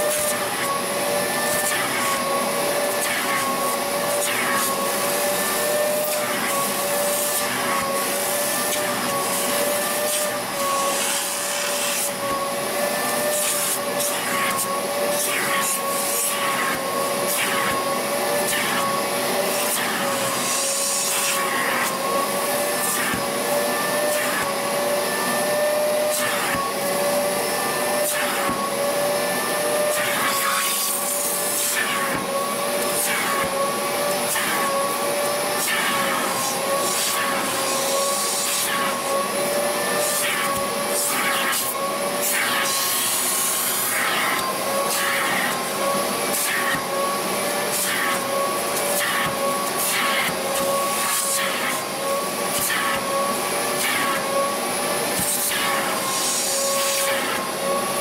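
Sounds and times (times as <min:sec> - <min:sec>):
vacuum motor whine: 0:00.0 - 0:58.0
nozzle sucking across fabric: 0:29.8 - 0:57.6.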